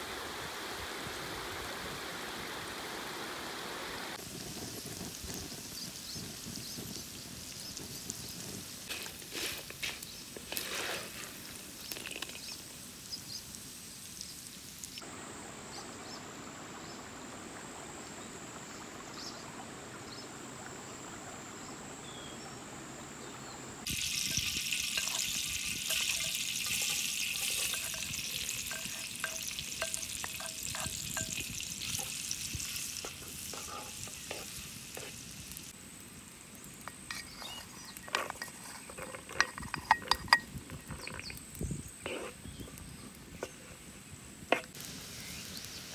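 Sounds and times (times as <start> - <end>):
butter sizzling in wok: 4.1 - 15.0, 23.8 - 45.9
wooden spatula scraping wok: 8.9 - 12.4, 23.9 - 35.6, 36.9 - 41.4, 42.0 - 42.8.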